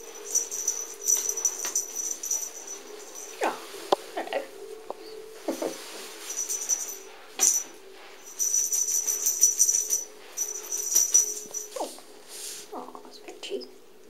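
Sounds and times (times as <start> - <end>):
jingle bell rattling: 0.0 - 3.9, 5.7 - 12.1.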